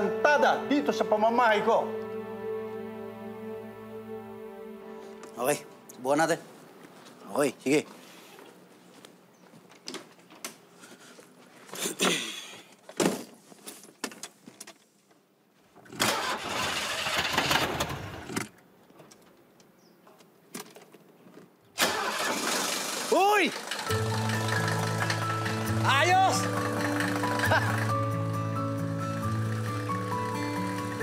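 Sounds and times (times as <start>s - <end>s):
car starter cranking engine: 15.9s - 18.5s, 21.8s - 31.0s.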